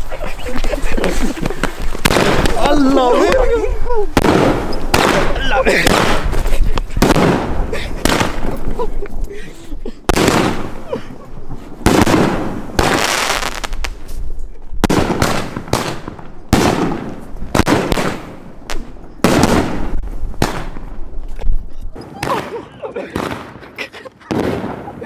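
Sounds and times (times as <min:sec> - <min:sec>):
fireworks reports with hiss: 0:00.0 - 0:08.8, 0:10.1 - 0:20.8.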